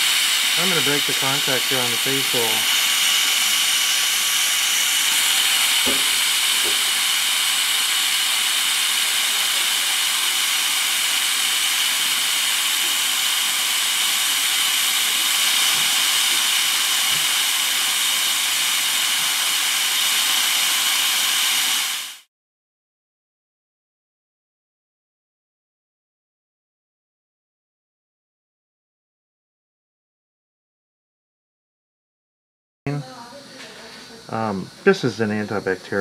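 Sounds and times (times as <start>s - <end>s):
dental drill whine: 0.0s - 22.3s, 34.1s - 36.0s
dental suction hiss: 0.0s - 22.3s, 33.8s - 36.0s.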